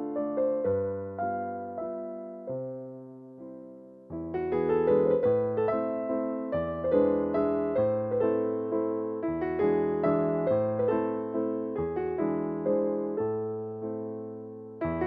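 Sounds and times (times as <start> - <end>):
slow gentle piano chords: 0.0 - 15.0.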